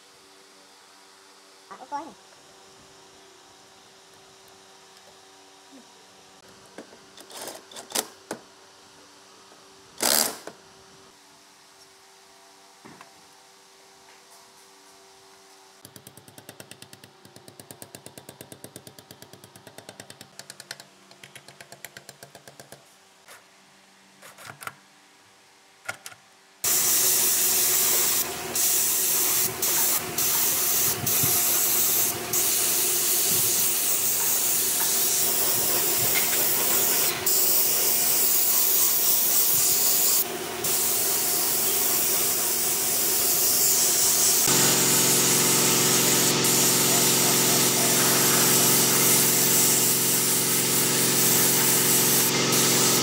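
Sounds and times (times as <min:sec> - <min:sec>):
spray gun hissing: 0:26.6 - 0:53.0.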